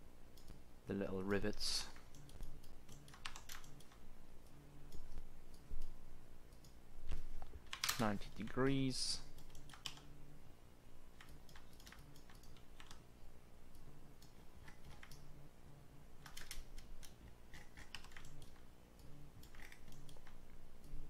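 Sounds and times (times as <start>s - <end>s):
computer keyboard keystrokes: 2.0s - 4.0s, 7.6s - 8.6s, 9.3s - 10.1s, 11.2s - 13.0s, 14.2s - 15.2s, 16.2s - 18.6s, 19.4s - 20.9s.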